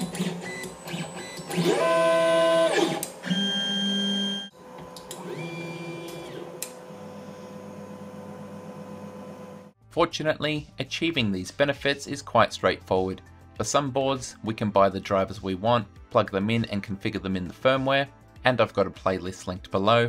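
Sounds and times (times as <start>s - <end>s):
stepper motor whine: 0.0s - 9.7s
quiet motor running: 4.6s - 9.8s.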